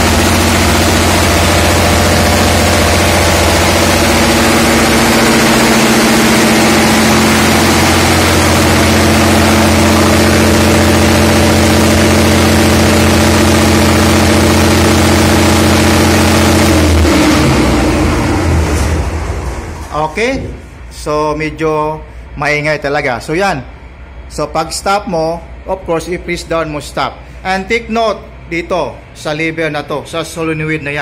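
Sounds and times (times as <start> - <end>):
generator engine running: 0.0 - 22.3.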